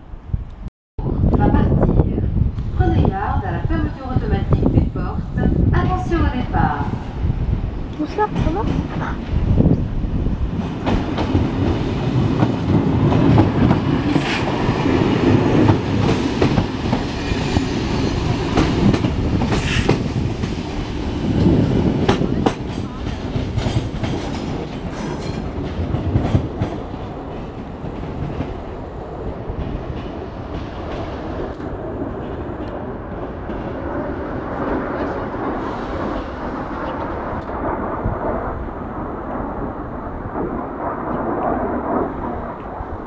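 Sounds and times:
train rolling noise: 0.0s - 43.0s
train wheels clacking over joints: 22.0s - 28.6s.

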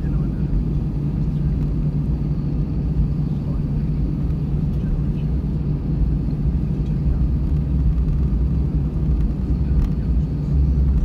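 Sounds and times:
jet engines rumbling in cabin: 0.0s - 11.0s.

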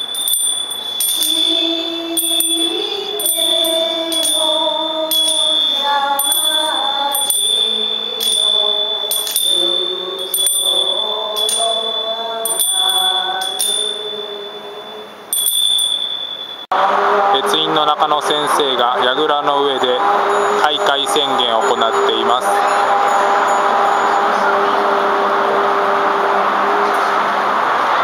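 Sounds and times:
hand bells ringing: 0.0s - 16.7s, 20.2s - 24.7s
women singing in unison: 0.9s - 15.0s.

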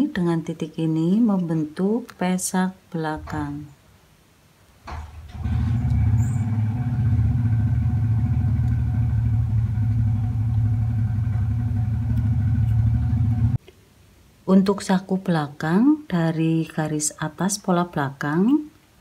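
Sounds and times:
vehicle engine running: 5.1s - 13.6s.

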